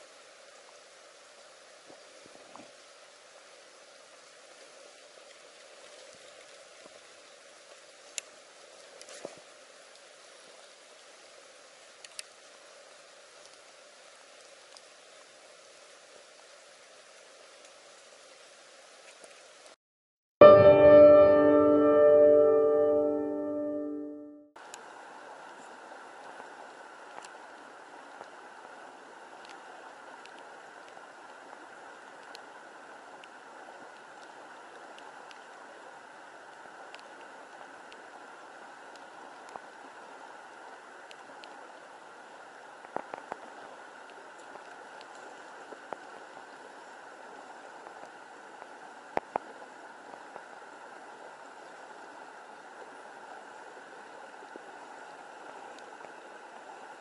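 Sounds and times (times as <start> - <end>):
faint sharp ticks: 8.1 - 8.3, 12.0 - 12.4, 32.2 - 32.5
flowing water rushing: 24.6 - 57.0.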